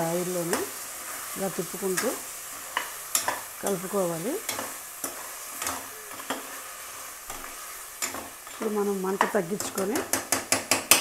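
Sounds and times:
food sizzling in hot oil: 0.0s - 11.0s
spoon scraping and knocking pot: 7.3s - 8.6s, 9.2s - 11.0s.

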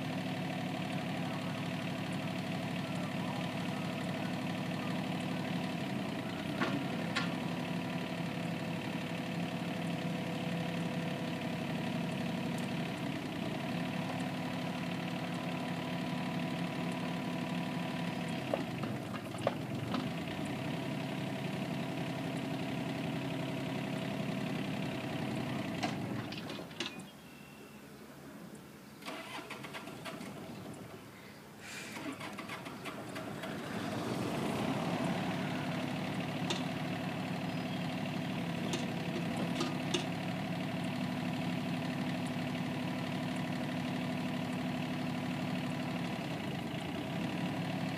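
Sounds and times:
excavator diesel engine running: 0.0s - 27.3s, 29.0s - 31.1s, 31.7s - 47.9s
short clicks and clunks: 25.7s - 27.1s, 38.7s - 40.2s.

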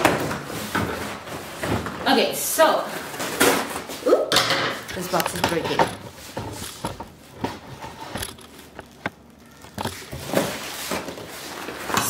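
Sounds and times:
sharp clicks and knocks: 4.9s - 10.0s
cardboard rustling and scraping: 5.5s - 12.0s.

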